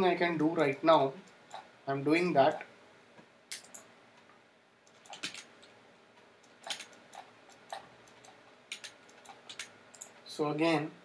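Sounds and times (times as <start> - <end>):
mouse and keyboard clicks: 4.9 - 5.8, 6.4 - 10.1.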